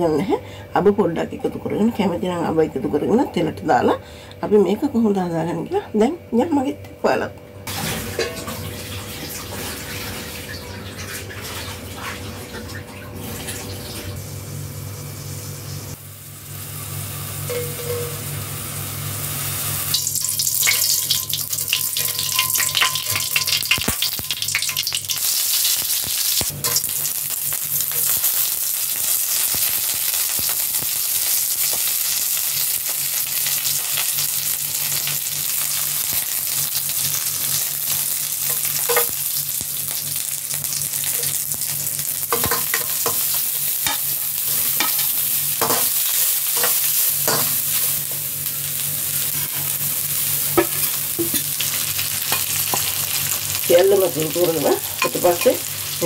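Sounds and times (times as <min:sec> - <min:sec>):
hot oil sizzling in a wok: 0:13.7 - 0:56.0.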